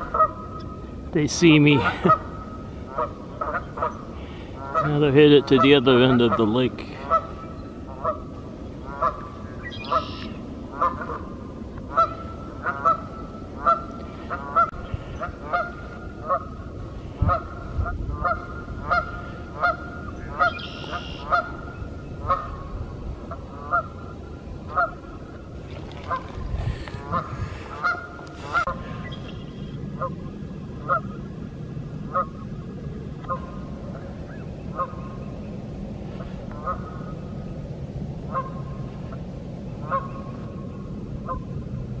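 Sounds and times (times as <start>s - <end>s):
geese honking: 0.0s - 0.7s, 1.5s - 16.6s, 17.2s - 22.7s, 23.3s - 24.1s, 24.7s - 25.1s, 26.0s - 29.2s, 30.0s - 30.2s, 30.8s - 31.2s, 32.1s - 32.4s, 34.7s - 35.2s, 36.1s - 37.2s, 38.3s - 39.2s, 39.8s - 40.4s.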